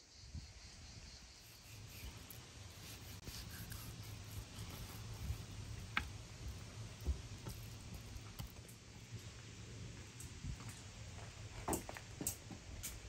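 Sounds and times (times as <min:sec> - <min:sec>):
knife slicing meat: 0:01.6 - 0:05.4.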